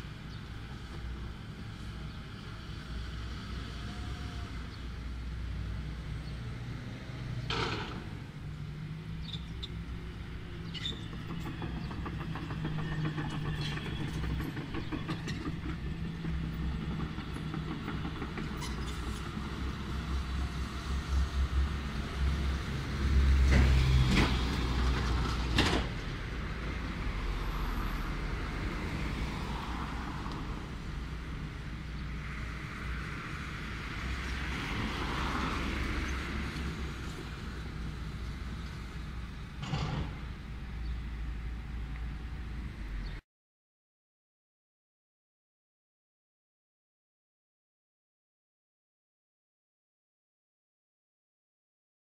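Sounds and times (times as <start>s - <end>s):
heavy diesel machinery running: 9.9s - 27.0s.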